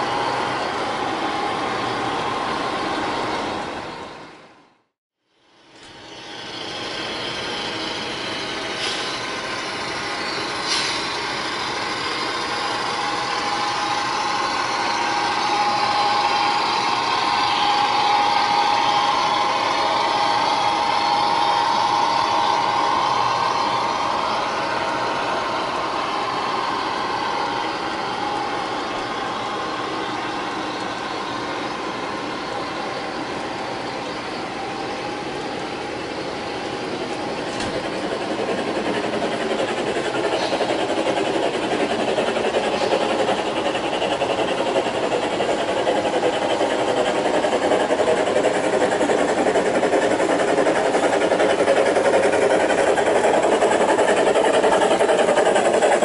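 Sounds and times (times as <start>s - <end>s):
model train wheels clattering: 37.4s - 56.0s.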